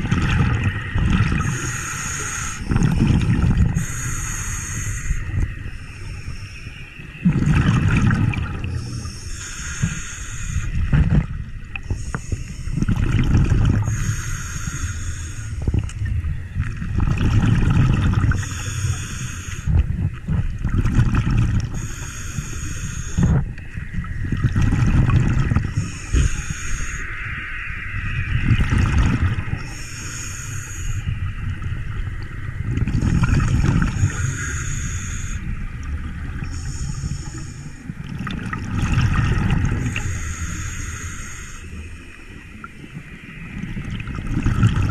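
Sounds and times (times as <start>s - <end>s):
exhaled air bubbling: 0.0s - 44.9s
regulator inhale hiss: 1.4s - 2.7s, 3.7s - 7.0s, 8.6s - 10.9s, 11.8s - 12.9s, 13.8s - 15.9s, 18.3s - 19.9s, 21.6s - 23.5s, 25.6s - 27.4s, 29.6s - 31.2s, 33.8s - 35.6s, 36.4s - 38.0s, 39.8s - 42.7s.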